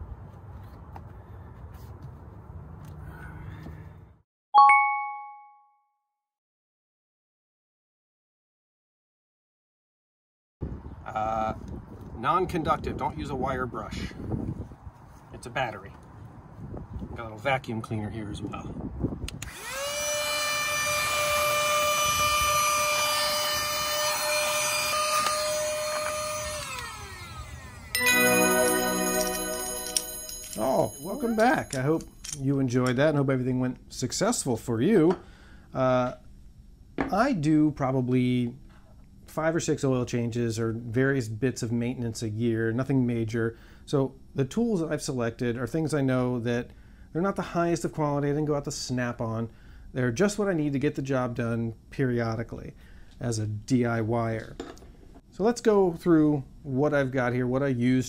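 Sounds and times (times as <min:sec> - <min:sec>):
bell-like ding: 0:04.6 - 0:05.9, 0:28.0 - 0:32.2
handheld vacuum cleaner whine: 0:19.4 - 0:28.1.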